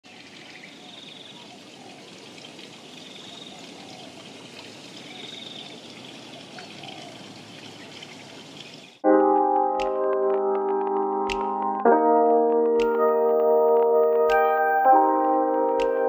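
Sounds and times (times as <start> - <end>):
faint bird calls and trills: 0.1 - 9.0.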